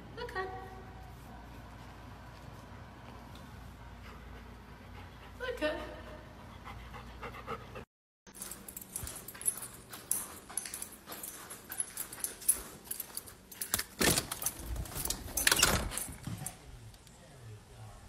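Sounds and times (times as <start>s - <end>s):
handling noise rustling and knocks: 8.3s - 16.7s.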